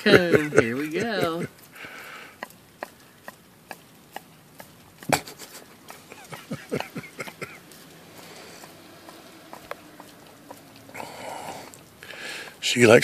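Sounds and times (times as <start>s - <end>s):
slurping licks: 1.6s - 12.6s
dog licking ice cream: 2.4s - 12.7s.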